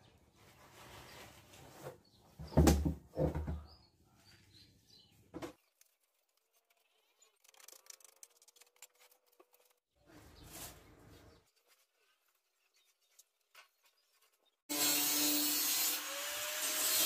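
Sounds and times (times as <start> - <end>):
rustling noise: 0.2 - 2.4, 5.1 - 14.6.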